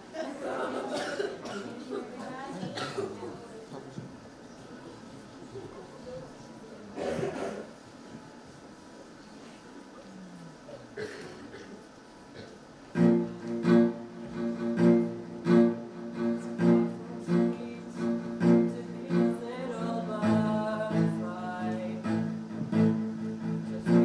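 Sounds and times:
low bowed strings: 0:13.0 - 0:24.0
plucked guitar chords: 0:13.0 - 0:24.0.

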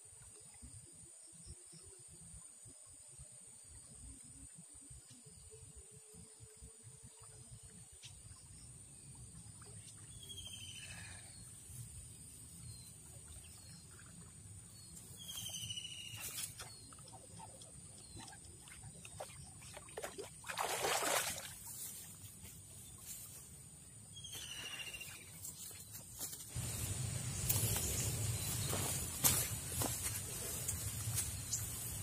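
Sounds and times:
water splashing: 0:18.6 - 0:21.8
high insect drone: 0:24.2 - 0:32.0.

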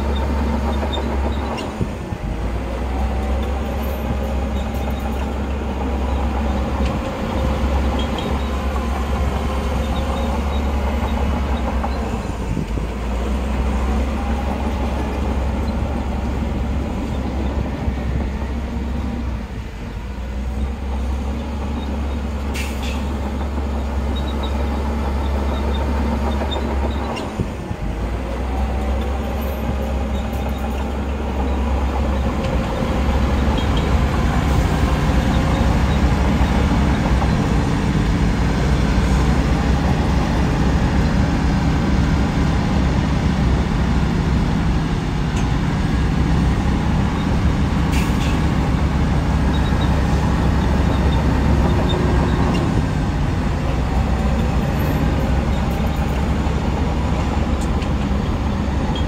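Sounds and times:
heavy machinery engine rumble: 0:00.0 - 0:59.0.

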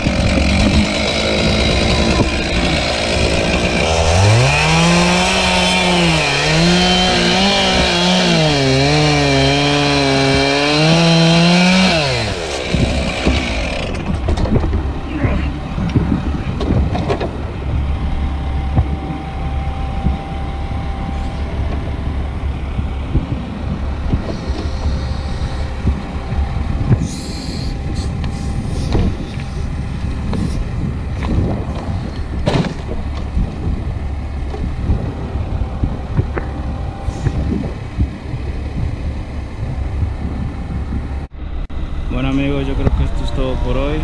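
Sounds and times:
knocks and clunks: 0:12.6 - 0:17.5, 0:31.2 - 0:33.8.

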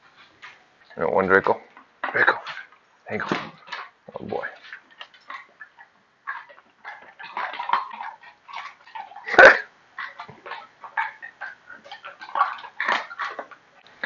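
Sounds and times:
dogs whining and yelping: 0:05.2 - 0:13.6.

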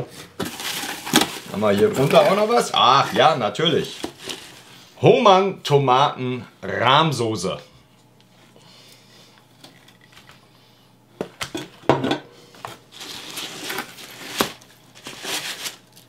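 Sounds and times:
cardboard and paper rustling: 0:00.1 - 0:04.8, 0:12.7 - 0:16.0.

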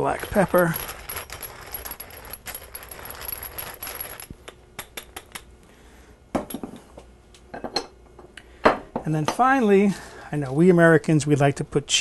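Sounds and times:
pepper mill grinding: 0:00.0 - 0:05.4.

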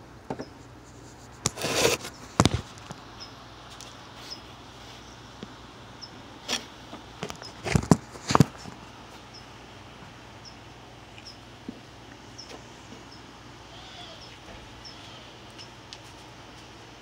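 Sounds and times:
faint high chirp: 0:13.1 - 0:15.8.

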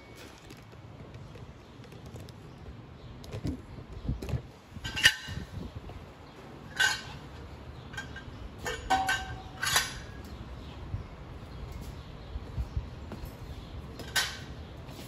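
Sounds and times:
metal pipe clinking: 0:06.7 - 0:10.3.

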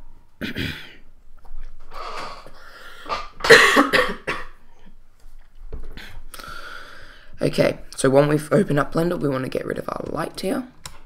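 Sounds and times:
person clearing throat: 0:00.4 - 0:01.0, 0:03.1 - 0:04.6
person coughing: 0:00.4 - 0:01.0, 0:03.1 - 0:04.6.

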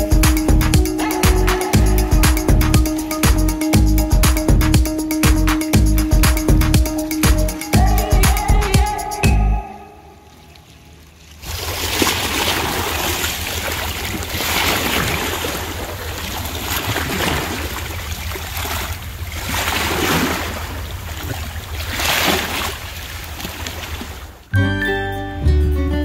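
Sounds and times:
waves lapping against rocks: 0:10.2 - 0:24.5.

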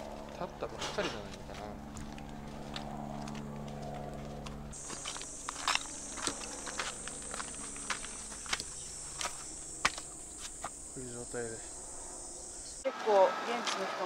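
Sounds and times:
footsteps walking: 0:00.0 - 0:11.0
high-pitched insect buzz: 0:04.7 - 0:12.9.

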